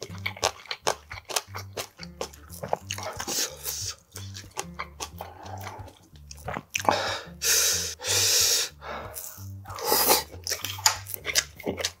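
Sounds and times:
crunchy chewing: 0.0s - 7.1s, 9.0s - 12.0s
soft background music: 0.0s - 12.0s.

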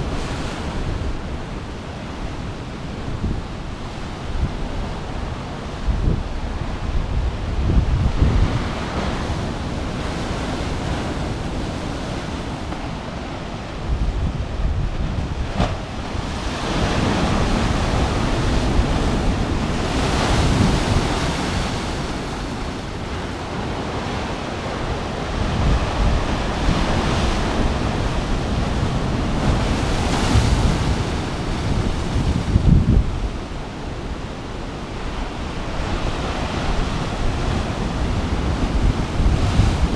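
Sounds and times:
wind buffeting microphone: 0.0s - 39.9s
waves crashing onto rocks: 8.1s - 39.9s.

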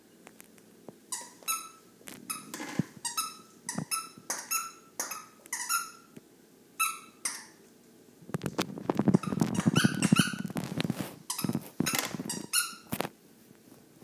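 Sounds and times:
squeaky toy squeaking: 1.1s - 6.2s, 6.8s - 7.6s, 9.1s - 10.6s, 11.3s - 12.9s.

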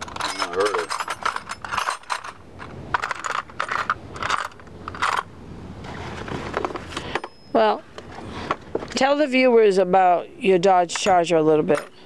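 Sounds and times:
small metal hardware clinking: 0.0s - 5.3s, 7.0s - 7.7s, 10.9s - 12.0s.

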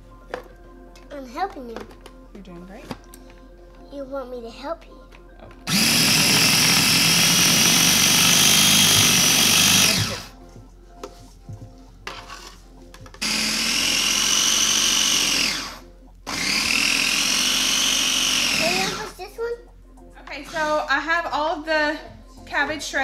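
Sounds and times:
food chopper motor whine: 5.7s - 10.4s, 13.2s - 19.2s.

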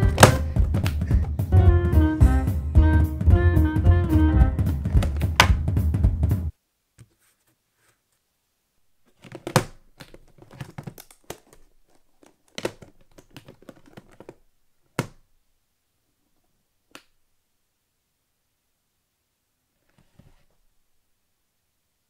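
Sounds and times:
hands tapping and scraping a case: 0.0s - 1.4s, 4.8s - 5.6s, 9.1s - 15.2s.

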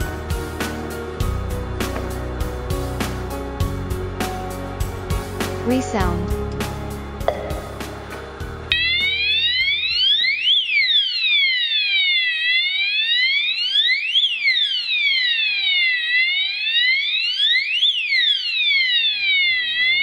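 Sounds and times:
rising and falling fire alarm siren: 8.7s - 20.0s.

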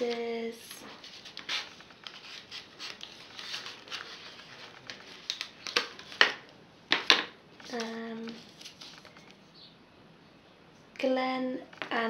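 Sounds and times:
cardboard packaging rustling: 0.0s - 6.4s, 7.6s - 9.5s.

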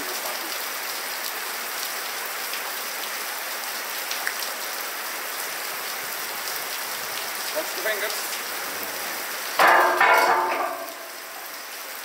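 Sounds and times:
rain on a roof: 0.0s - 12.0s.

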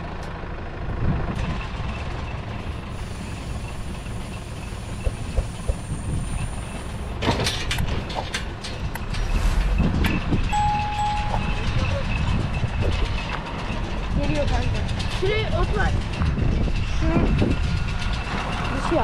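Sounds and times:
vehicle engine rumbling: 0.0s - 19.0s
loud knocking and clattering: 7.2s - 19.0s.

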